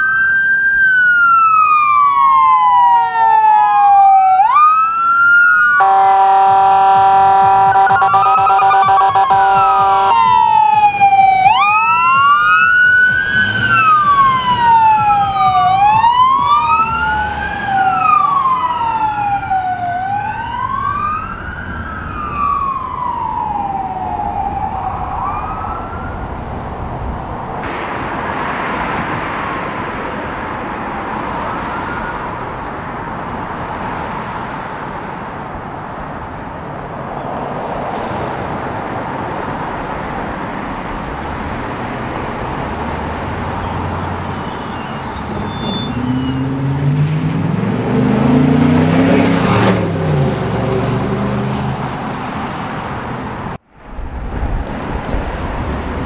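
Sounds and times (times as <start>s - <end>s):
electronic siren wailing: 0.0s - 26.5s
cars driving past: 0.9s - 56.0s.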